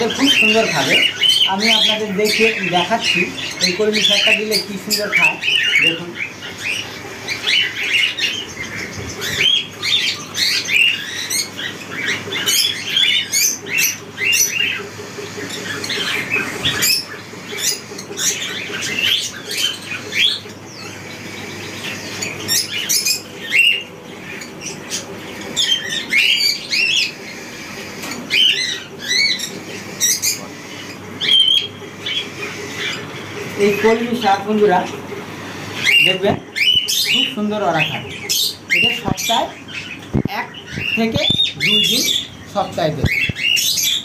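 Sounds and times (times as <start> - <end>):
birds chirping and squawking: 0.0 - 44.0.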